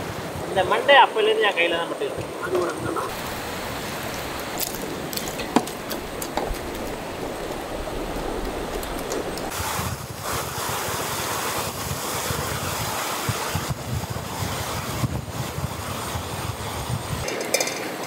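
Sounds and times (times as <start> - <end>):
river rushing over rapids: 3.1 - 9.7.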